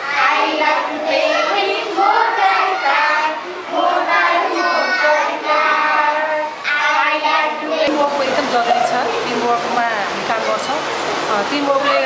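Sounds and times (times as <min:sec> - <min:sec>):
small children singing: 0:00.0 - 0:08.1.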